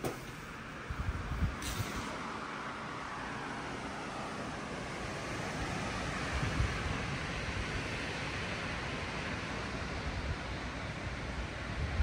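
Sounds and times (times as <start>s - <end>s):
blizzard wind blowing: 0.0s - 12.0s
wind buffeting microphone: 0.7s - 2.0s, 5.6s - 8.4s, 9.9s - 12.0s.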